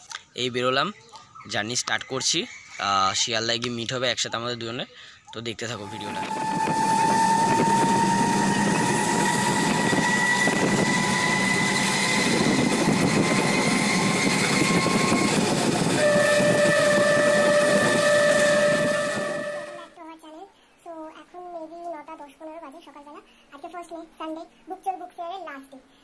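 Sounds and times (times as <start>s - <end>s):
long rising tone: 5.8s - 19.9s
train carriage rushing and rattling: 5.8s - 19.9s.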